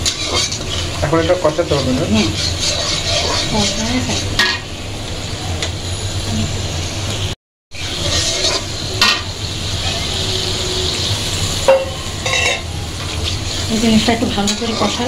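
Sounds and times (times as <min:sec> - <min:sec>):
paste sizzling in hot oil: 0:00.0 - 0:04.7, 0:07.8 - 0:15.0
spatula scraping a pan: 0:00.0 - 0:04.7, 0:07.8 - 0:15.0.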